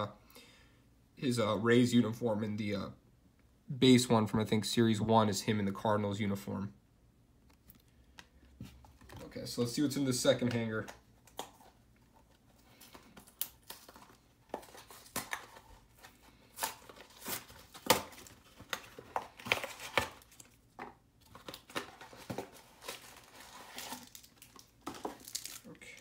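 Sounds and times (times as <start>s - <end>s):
packaging tearing and crinkling: 16.5s - 20.6s, 21.2s - 26.0s.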